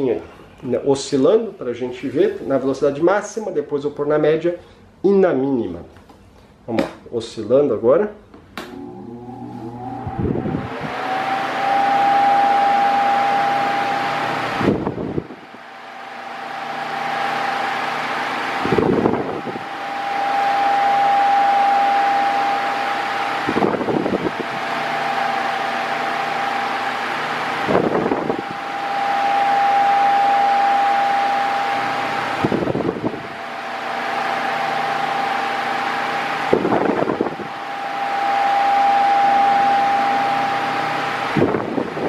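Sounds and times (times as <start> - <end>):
fan air rushing: 0.0 - 42.0
fan motor whine: 8.5 - 42.0
wind rumble on microphone: 9.9 - 11.0, 18.6 - 19.6, 23.5 - 24.5, 32.4 - 33.3, 36.5 - 37.5, 41.3 - 42.0.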